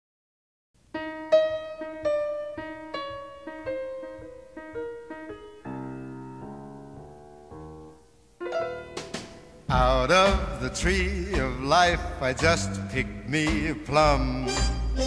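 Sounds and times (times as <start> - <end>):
solo piano music: 0.8 - 13.3.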